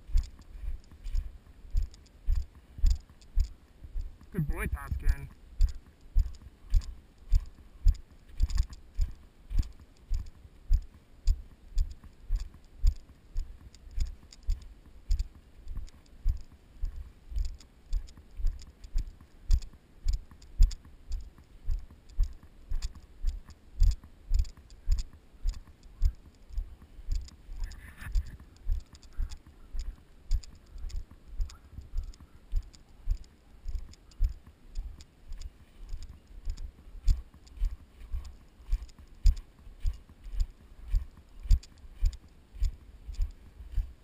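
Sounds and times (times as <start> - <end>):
footsteps on grass and snow: 0.0 - 10.9, 35.2 - 44.0.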